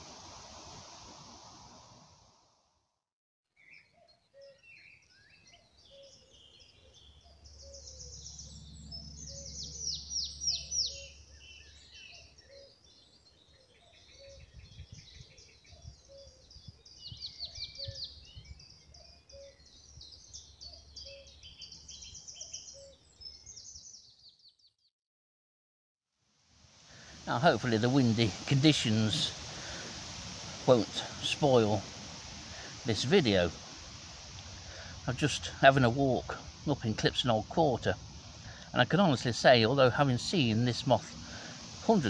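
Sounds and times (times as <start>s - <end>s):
low repeated bird call: 3.6s - 24.1s
songbirds trilling and chirping: 3.6s - 24.8s, 26.8s - 42.0s.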